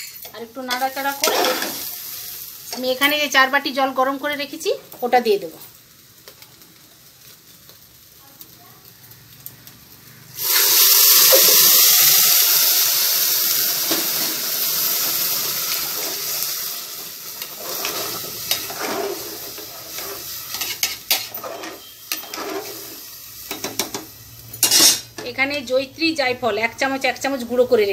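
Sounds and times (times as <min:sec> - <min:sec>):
water hissing in hot pot: 0:00.9 - 0:05.9, 0:08.9 - 0:25.1.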